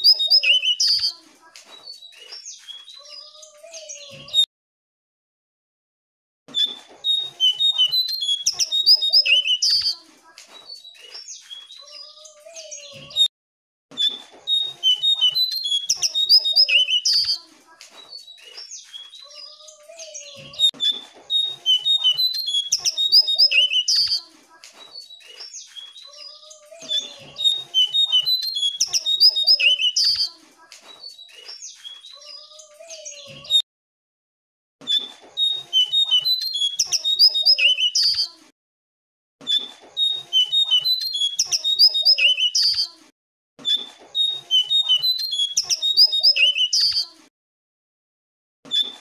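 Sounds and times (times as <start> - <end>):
bird chirps and trills: 0.0 - 4.4, 6.5 - 13.3, 13.9 - 33.6, 34.8 - 38.4, 39.4 - 43.0, 43.6 - 47.2.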